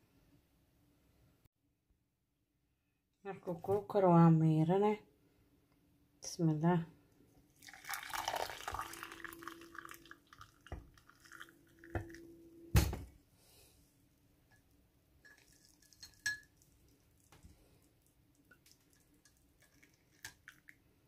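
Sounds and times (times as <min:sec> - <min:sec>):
tea pouring and splashing: 0:07.4 - 0:12.3, 0:15.2 - 0:21.0.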